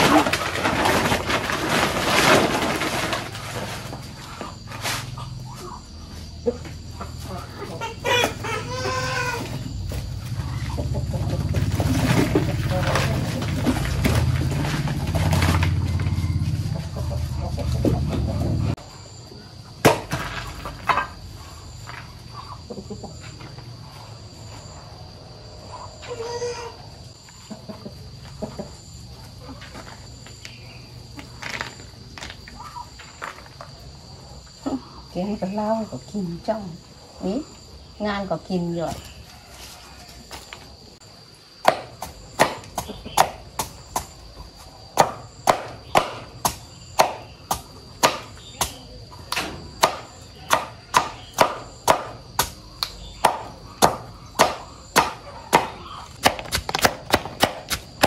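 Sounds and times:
chicken calling: 4.1 - 18.7, 25.7 - 29.8
blade chopping plant matter: 41.6 - 44.2, 45.0 - 58.0.

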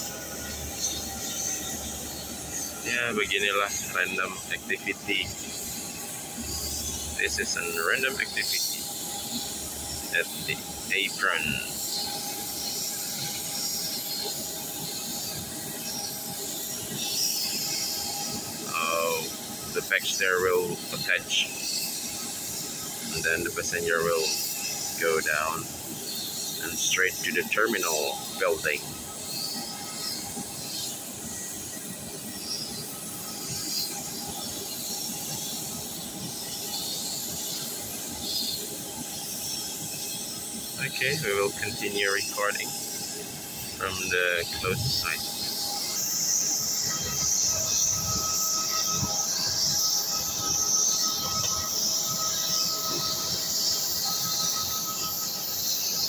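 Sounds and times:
jet engine hiss and whine: 0.0 - 56.0
thin steady tones: 0.0 - 56.0.

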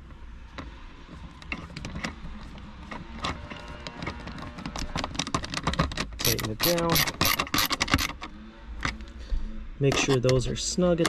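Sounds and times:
screwdriver clicks and scrapes: 1.4 - 8.2.

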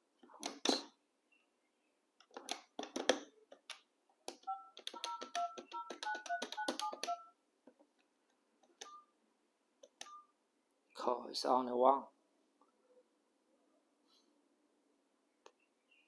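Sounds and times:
phone keypad beeps: 4.4 - 7.4, 8.8 - 9.2, 10.0 - 10.4.

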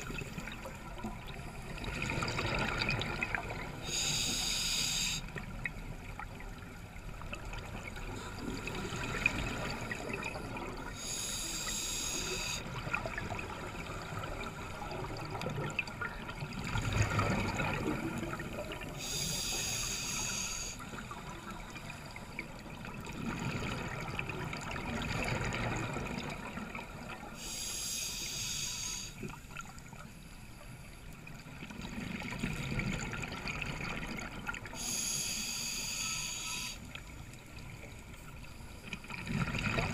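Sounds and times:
regulator breathing hiss: 3.8 - 5.4, 10.9 - 12.7, 19.0 - 21.1, 27.4 - 29.2, 34.8 - 36.9.

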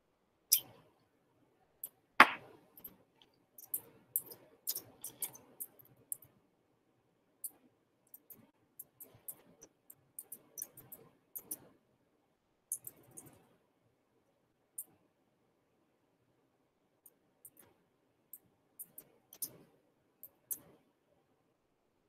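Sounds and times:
loud knock: 2.2 - 2.4
mouse and keyboard clicking: 8.2 - 11.6.

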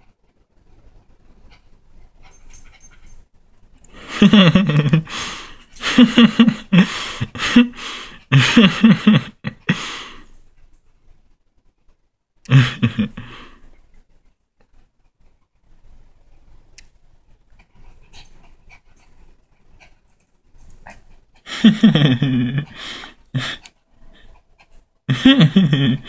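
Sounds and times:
dog panting hard: 1.3 - 3.2, 17.3 - 21.7, 22.6 - 25.1.

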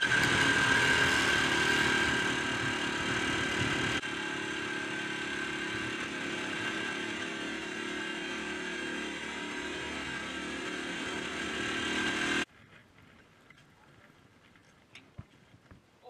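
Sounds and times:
dirt bike engine running: 0.0 - 12.5.

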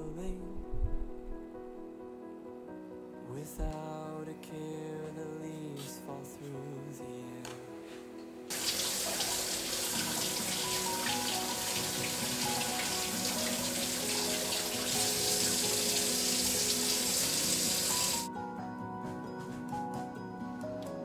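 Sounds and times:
rinsing fruit by hand: 8.5 - 18.3.

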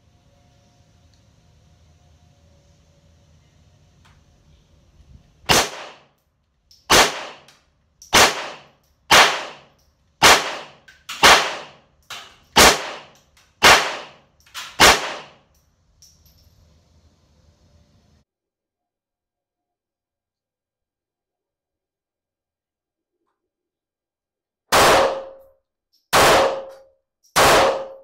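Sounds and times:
handgun shots ringing: 5.5 - 6.1, 6.9 - 15.4, 24.7 - 25.5, 26.1 - 28.0.

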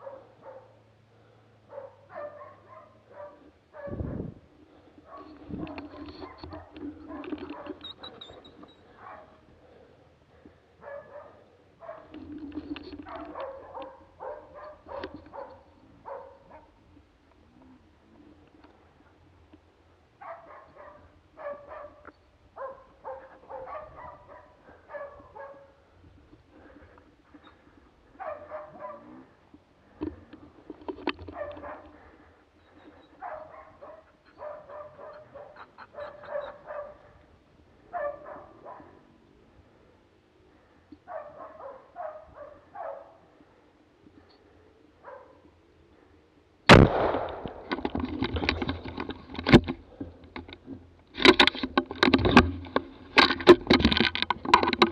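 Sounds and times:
dog barking: 0.0 - 0.8, 1.7 - 4.3, 5.1 - 7.8, 8.9 - 9.4, 10.8 - 12.1, 13.1 - 16.7, 20.2 - 25.8, 28.2 - 29.2, 31.3 - 31.9, 33.2 - 37.2, 37.9 - 39.0, 41.1 - 43.2, 45.0 - 45.4.

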